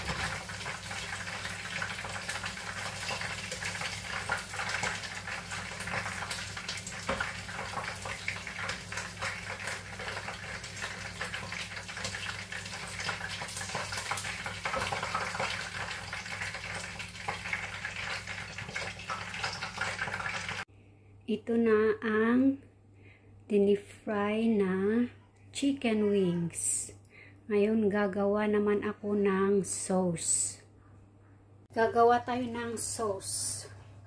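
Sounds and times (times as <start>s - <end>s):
hot oil sizzling in a wok: 0.0s - 20.7s.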